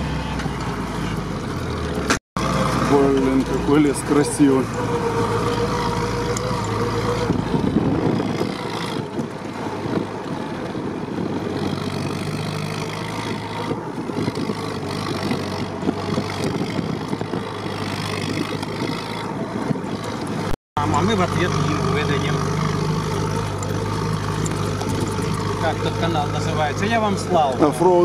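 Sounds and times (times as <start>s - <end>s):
jeep engine running under load: 0.0s - 28.0s
cab rattles and knocks: 22.4s - 27.3s.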